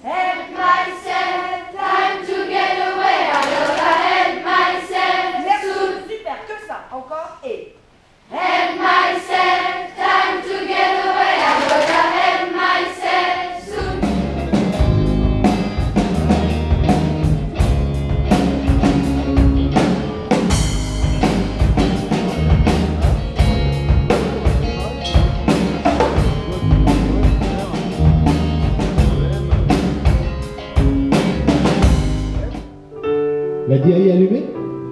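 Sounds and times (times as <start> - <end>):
children's choir singing: 0.0 - 6.2, 8.3 - 14.9
rock band playing: 13.7 - 33.4.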